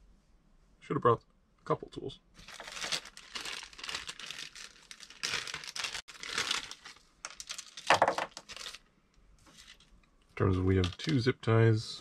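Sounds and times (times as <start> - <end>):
plastic bag crinkling: 2.4 - 8.9.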